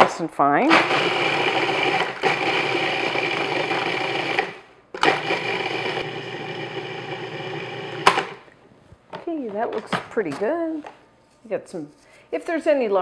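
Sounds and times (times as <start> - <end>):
food processor grinding biscuits: 0.7 - 8.4.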